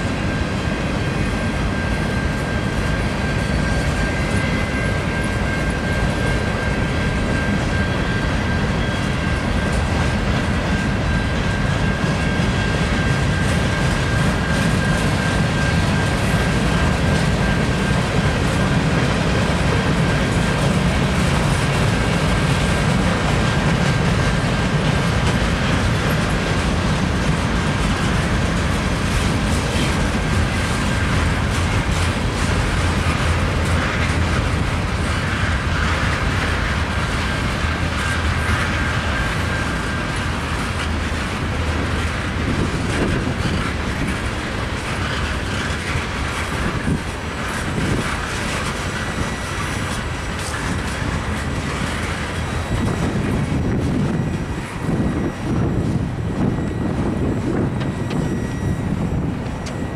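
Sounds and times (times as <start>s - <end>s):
clickety-clack of rail joints: 0.0s - 59.9s
train wheels rumbling on rails: 0.0s - 59.9s.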